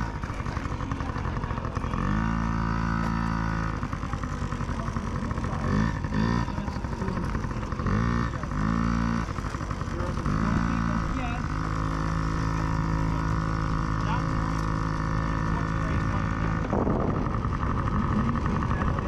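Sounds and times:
dirt bike engine revving: 0.0 - 19.0.

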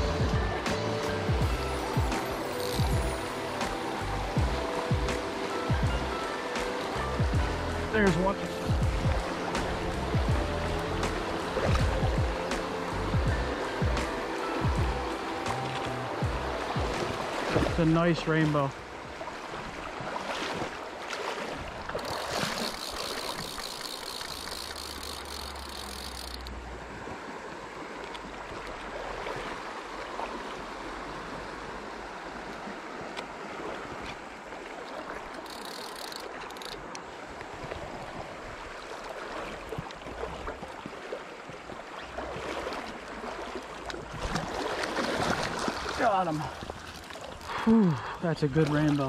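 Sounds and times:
stream water flowing: 0.0 - 49.0
high rapid rattling buzz: 2.1 - 3.1, 22.0 - 26.6, 35.4 - 36.8.

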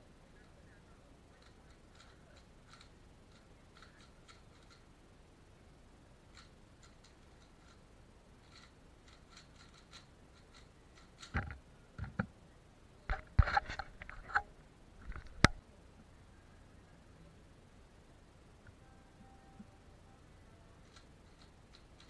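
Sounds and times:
puzzle cube turning clicks: 1.4 - 4.8, 8.4 - 11.6, 20.8 - 22.0.

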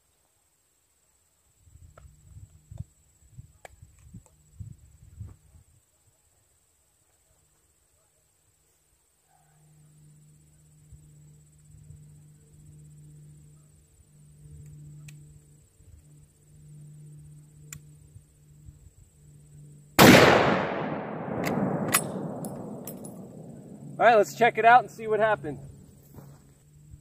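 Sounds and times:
sharp rifle bolt clicks: 20.0 - 23.5
rifle shot with echo: 20.0 - 23.9.

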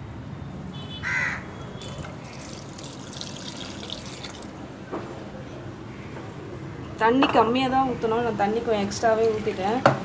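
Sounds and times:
water pouring into a pot: 1.8 - 4.6.

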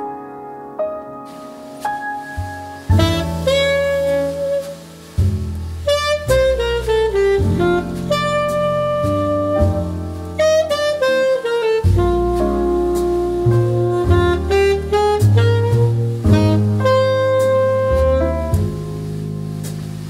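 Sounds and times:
bass line: 2.3 - 20.0
saxophone melody: 2.8 - 4.9, 5.8 - 18.8.

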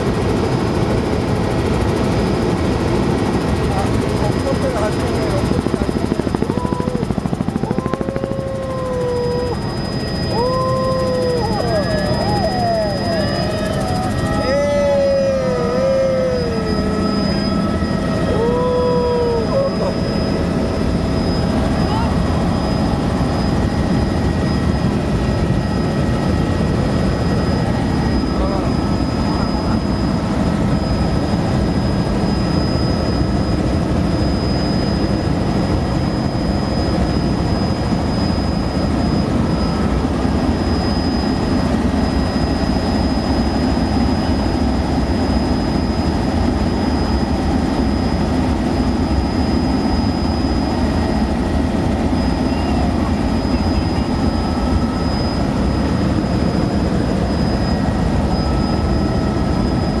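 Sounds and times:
helicopter engine and rotors: 0.0 - 60.0
thin high whine: 5.2 - 33.3.

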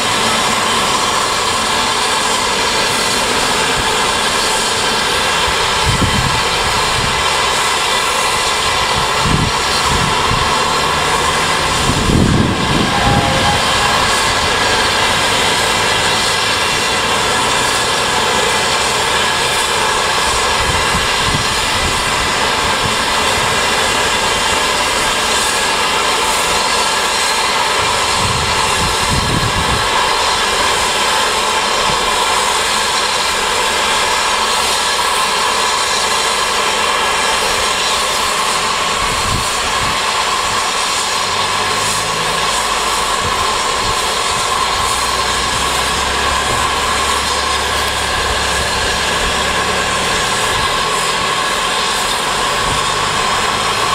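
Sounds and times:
steam hissing from locomotives: 0.0 - 53.9
low rumbles: 8.6 - 24.6.

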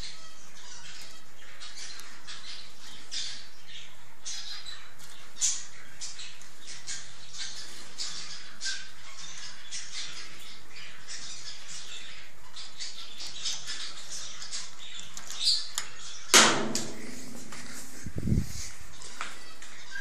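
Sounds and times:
loud sharp knock: 16.4 - 17.8.

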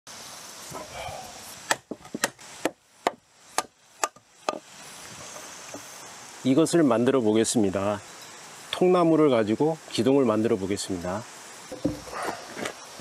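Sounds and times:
hammer knocking on wood: 11.7 - 12.1.

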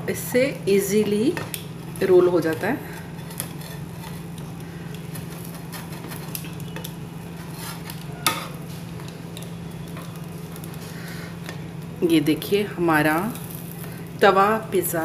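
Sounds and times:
pizza cutter scraping pan: 2.8 - 8.7.

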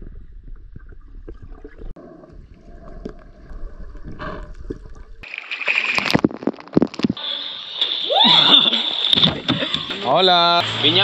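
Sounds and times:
underwater rumble and gurgling: 0.0 - 5.2
water splashing: 2.6 - 11.0.

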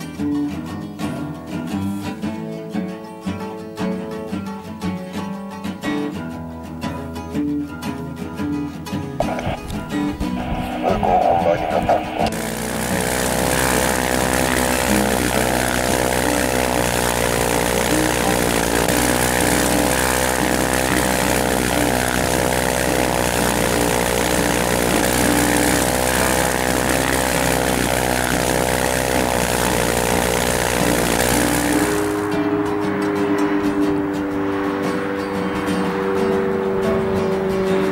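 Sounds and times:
light aircraft engine drone: 9.2 - 37.9.

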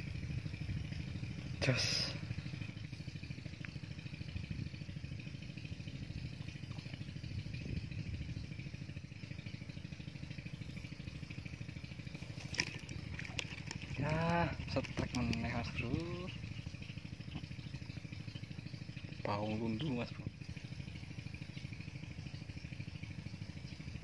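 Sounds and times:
small engine chugging: 0.0 - 24.0.

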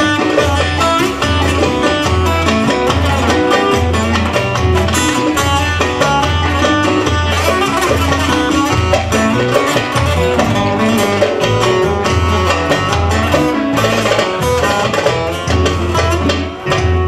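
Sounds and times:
amplified long-necked lute plucked: 0.0 - 17.0
low pulsing bass: 7.2 - 13.5.

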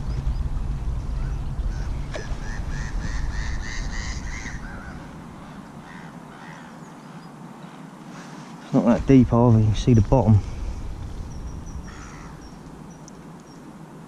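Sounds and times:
low rumble: 0.0 - 6.2, 9.0 - 13.2
bird cawing: 1.2 - 7.3, 10.5 - 13.2.

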